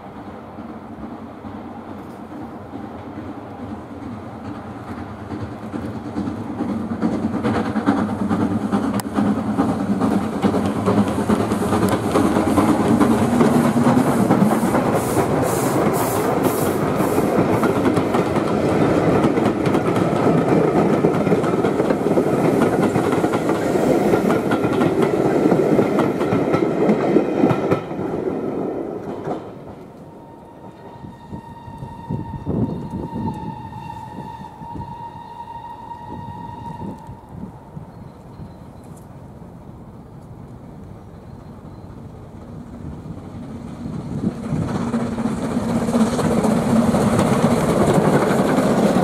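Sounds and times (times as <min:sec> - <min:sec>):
steam locomotive passing: 0:00.0 - 0:49.0
coaches clicking over rail joints: 0:00.6 - 0:34.3, 0:36.0 - 0:49.0.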